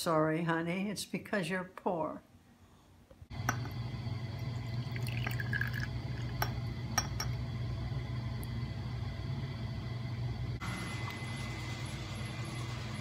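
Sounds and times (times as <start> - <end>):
steady low hum: 2.6 - 13.0
liquid pouring into glass: 3.4 - 7.4.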